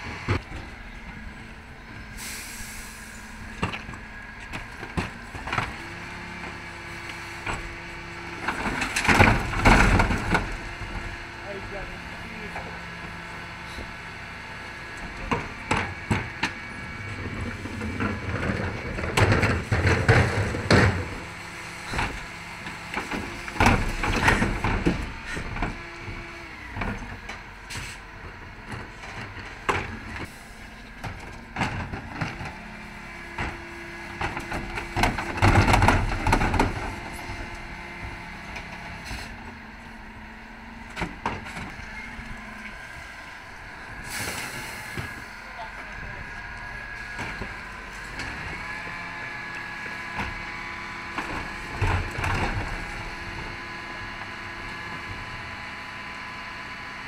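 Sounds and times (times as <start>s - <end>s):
hydraulic and engine hum: 0.0s - 57.0s
bins banging and clattering: 7.4s - 11.1s, 17.1s - 25.8s, 28.8s - 39.4s.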